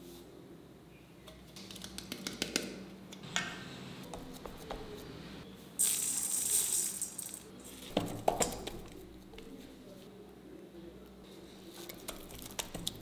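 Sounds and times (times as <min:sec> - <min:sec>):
seeds falling into metal bowl: 0:05.8 - 0:08.9.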